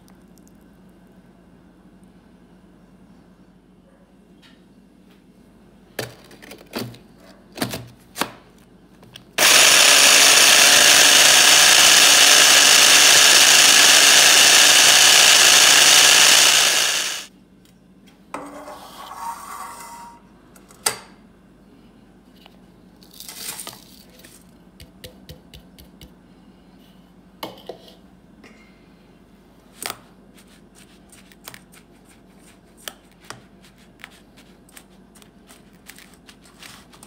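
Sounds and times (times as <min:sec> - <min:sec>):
electric food chopper whirring: 0:09.4 - 0:17.3.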